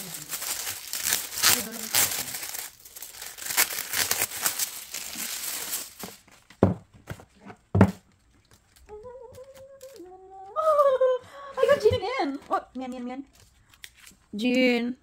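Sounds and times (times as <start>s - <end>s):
packaging crinkling and tearing: 0.0s - 6.6s, 8.1s - 10.1s
dull thumps: 6.5s - 8.2s
person humming softly: 8.8s - 11.3s.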